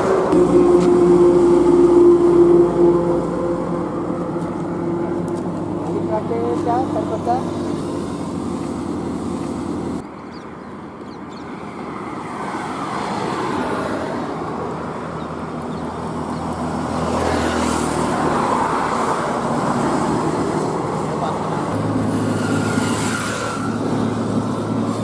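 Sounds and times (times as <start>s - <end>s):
steady engine drone: 0.0s - 11.0s, 14.2s - 25.0s
lorries passing on highway: 0.0s - 25.0s
car passing close by: 11.6s - 25.0s.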